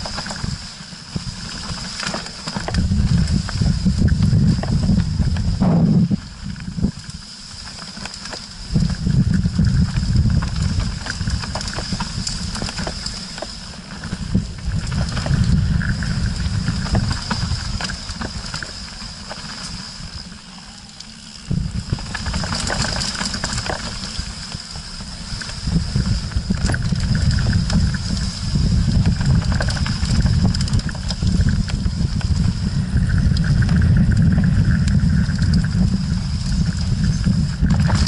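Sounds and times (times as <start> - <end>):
bike rattling: 0.0 - 38.0
bike tyres rumbling over stones: 0.0 - 38.0
wind buffeting microphone: 2.6 - 7.0, 8.6 - 13.0, 13.9 - 18.8, 21.4 - 24.4, 25.0 - 38.0.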